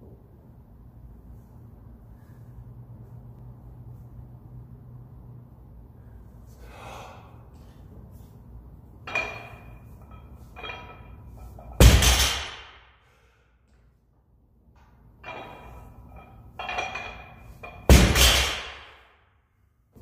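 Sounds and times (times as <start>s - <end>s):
barbell and plates rattling: 9.0s - 12.7s, 15.2s - 19.0s
barbell thud with metallic clank: 11.7s - 12.8s, 16.6s - 19.0s.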